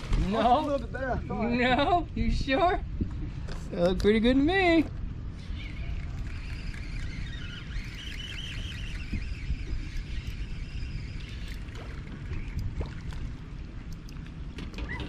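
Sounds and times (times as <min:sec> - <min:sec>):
water lapping against boat hull: 0:09.5 - 0:15.0.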